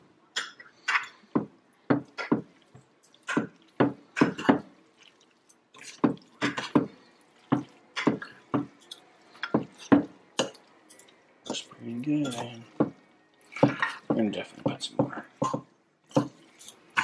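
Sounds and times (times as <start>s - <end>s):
forks clinking on glass dish: 8.8s - 11.6s, 12.2s - 12.6s, 16.1s - 17.0s.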